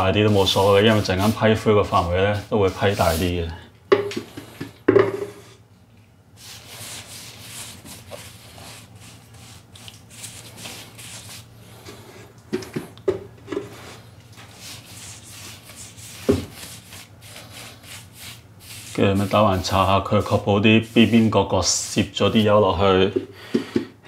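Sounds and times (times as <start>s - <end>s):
paintbrush scrubbing plaster: 0.0s - 3.5s, 6.4s - 12.2s, 13.6s - 23.0s.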